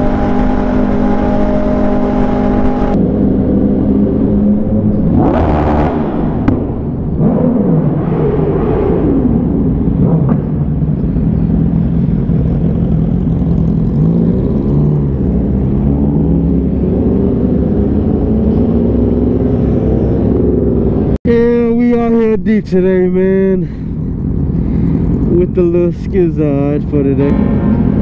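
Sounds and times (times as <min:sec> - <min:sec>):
motorcycle engine while riding: 0:00.0 - 0:21.2.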